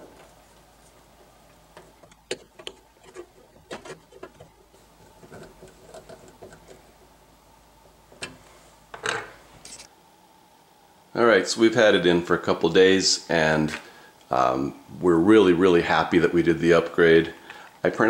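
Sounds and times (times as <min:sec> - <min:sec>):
scraping rattle: 0:01.8 - 0:06.9.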